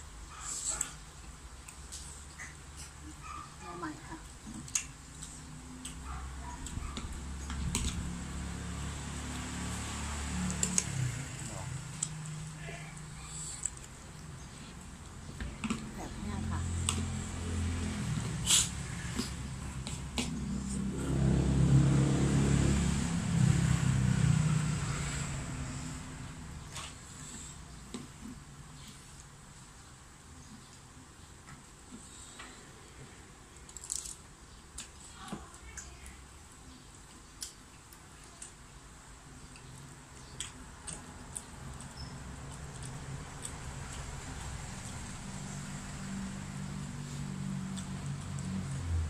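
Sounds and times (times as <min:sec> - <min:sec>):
people chewing food: 0:00.0 - 0:21.4, 0:22.0 - 0:49.0
vehicle engine passing by: 0:07.1 - 0:14.6, 0:15.6 - 0:27.5, 0:41.2 - 0:49.0.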